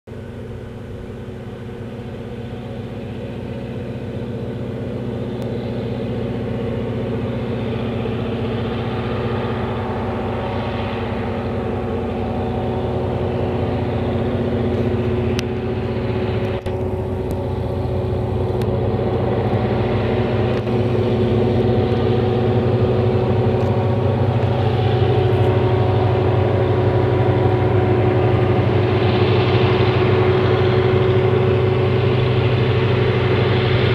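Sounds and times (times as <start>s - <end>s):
diesel locomotives droning: 0.1s - 33.9s.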